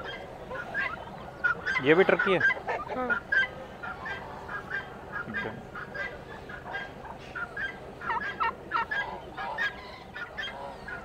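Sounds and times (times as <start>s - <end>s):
poultry calling: 0.0s - 11.0s.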